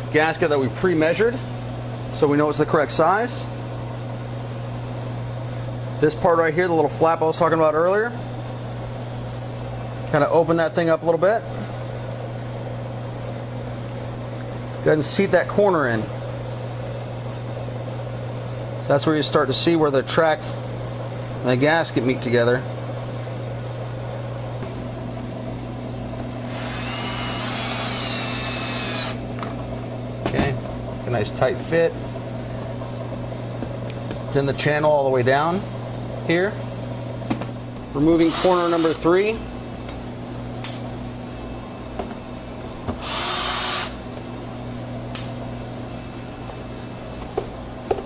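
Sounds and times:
steady low hum: 0:00.0 - 0:48.0
power drill whirring: 0:26.5 - 0:29.2, 0:38.2 - 0:39.0, 0:43.0 - 0:44.0.

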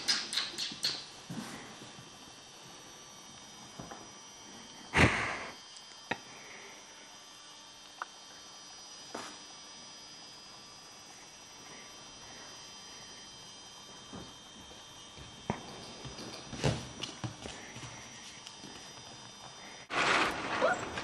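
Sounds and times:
sharp clicks: 0:00.0 - 0:01.0
faint electrical hum: 0:00.0 - 0:21.0
rustling thump: 0:19.9 - 0:21.0.

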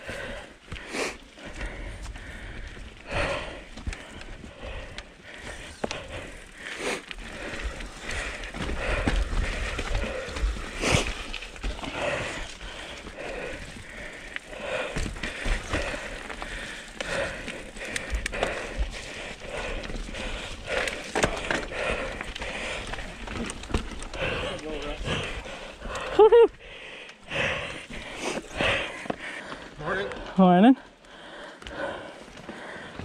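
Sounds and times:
bike tyres rolling over dirt: 0:00.0 - 0:30.4
rider breathing: 0:00.0 - 0:33.0
bike clicks and rattles: 0:02.6 - 0:26.4.

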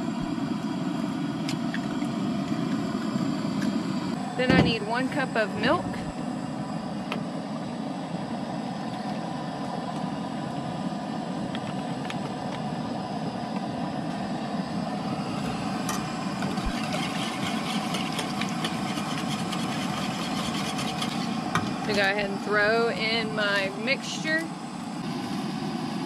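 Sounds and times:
camp stove burner hissing: 0:00.0 - 0:26.0
whisk scraping in a steel bowl: 0:16.5 - 0:21.4.

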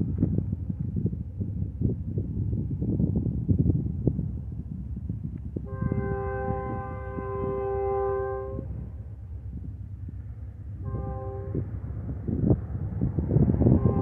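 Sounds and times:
wind on microphone: 0:00.0 - 0:14.0
locomotive air horn: 0:05.6 - 0:08.9, 0:10.8 - 0:11.6, 0:13.6 - 0:14.0.

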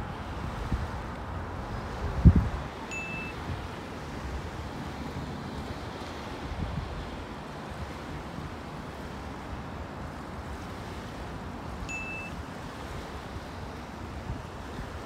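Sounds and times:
small waves lapping at shore: 0:00.0 - 0:15.0
wind rumble on microphone: 0:00.0 - 0:15.0
short high beep: 0:02.9 - 0:03.4, 0:11.9 - 0:12.4.

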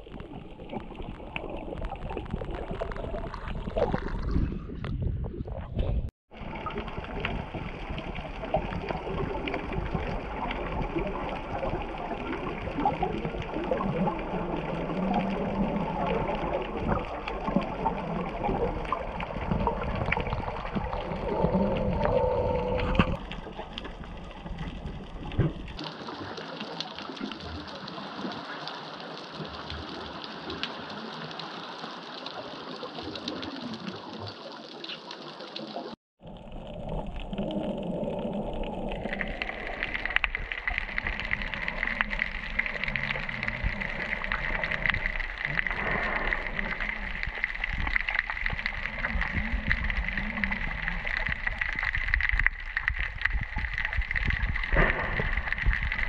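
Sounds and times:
dense crackle of clicks: 0:00.0 - 0:05.0, 0:06.3 - 0:56.0
low underwater rumble: 0:00.0 - 0:25.9, 0:36.2 - 0:56.0
muffled underwater hiss: 0:36.6 - 0:56.0.

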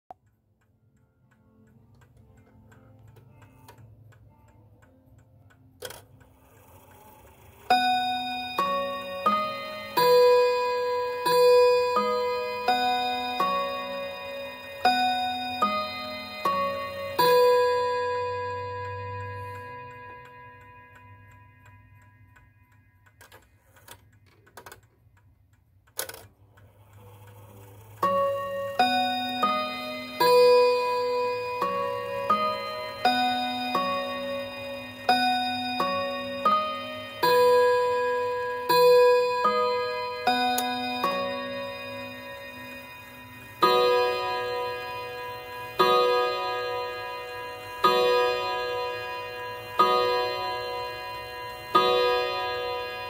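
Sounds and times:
clock mechanism clicking: 0:00.1 - 0:53.0
chime rod ringing: 0:07.7 - 0:22.7, 0:28.0 - 0:53.0.

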